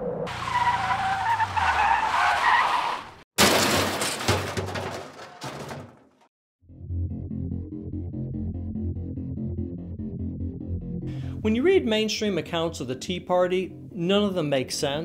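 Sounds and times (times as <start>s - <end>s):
skidding screeching sound effect: 0.0s - 3.2s
music: 6.6s - 15.0s.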